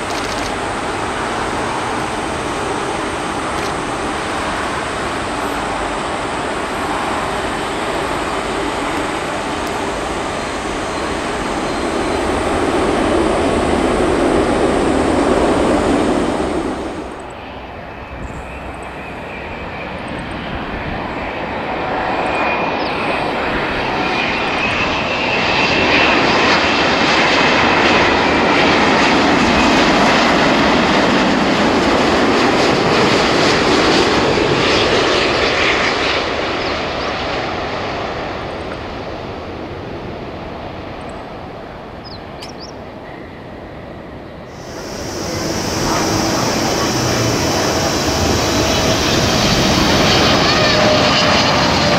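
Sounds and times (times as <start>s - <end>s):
jet engines on runway: 0.0s - 51.9s
jet plane approaching to land: 0.0s - 51.9s.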